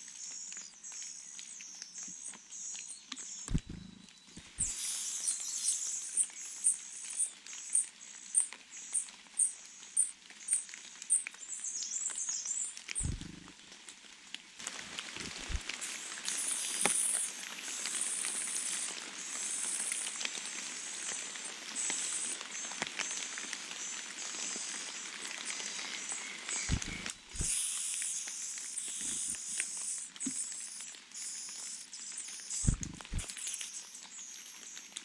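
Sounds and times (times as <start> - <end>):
nestlings begging calls: 3.4 - 6.8, 13.0 - 13.5, 15.2 - 15.6, 26.5 - 34.0
soft low thumps: 3.5 - 4.7, 13.0 - 13.5, 15.2 - 15.6, 26.7 - 27.5, 32.7 - 33.3.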